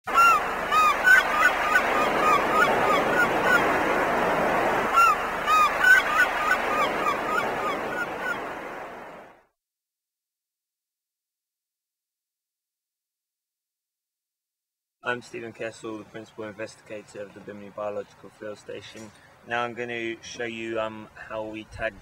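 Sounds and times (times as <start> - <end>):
short arched bird-like calls: 0.1 - 3.9, 4.9 - 8.6.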